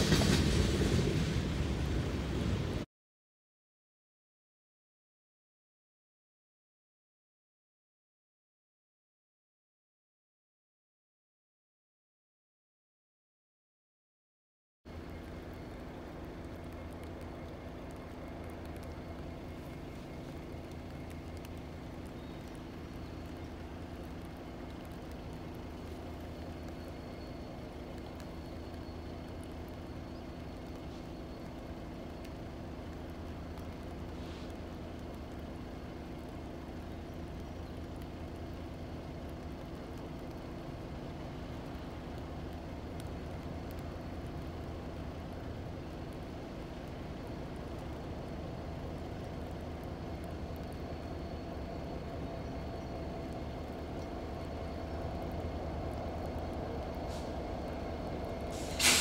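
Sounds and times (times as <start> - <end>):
diesel locomotive engine drone: 0.0 - 2.9, 14.9 - 59.0.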